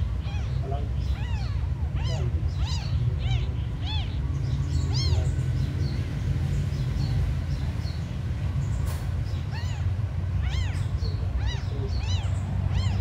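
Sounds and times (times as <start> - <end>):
kittens mewing: 0.0 - 5.8, 9.3 - 13.0.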